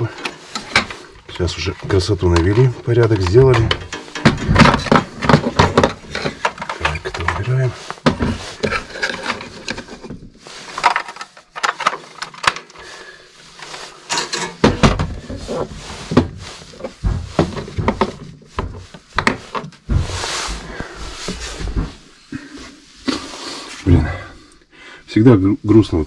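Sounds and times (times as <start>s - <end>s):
plastic radio handled on wood: 1.7s - 12.8s, 13.6s - 20.0s.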